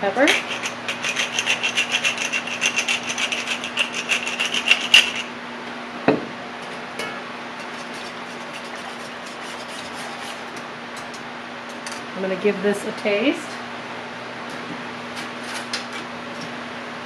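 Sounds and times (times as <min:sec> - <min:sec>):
steady low hum: 0:00.0 - 0:17.0
whisk stirring sauce: 0:00.2 - 0:05.2, 0:07.7 - 0:10.4
pepper mill grinding: 0:00.2 - 0:05.3.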